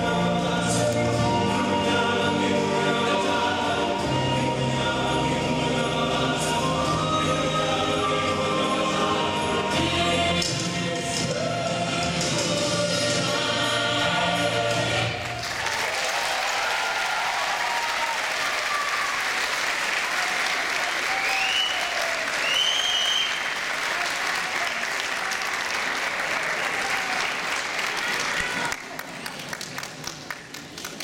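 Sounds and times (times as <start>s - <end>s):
recital music: 0.0s - 15.3s
audience applause: 15.2s - 31.0s
high cheers: 15.4s - 29.1s.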